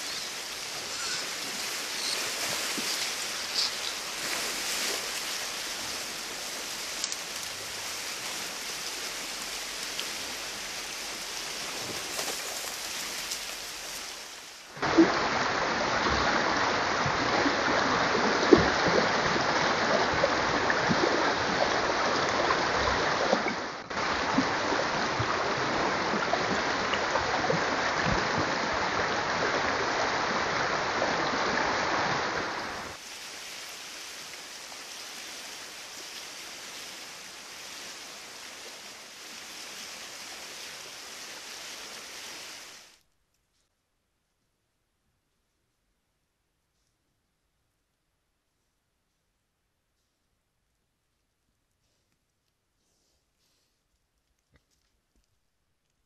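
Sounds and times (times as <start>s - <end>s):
rushing outdoor hiss: 0.0s - 43.0s.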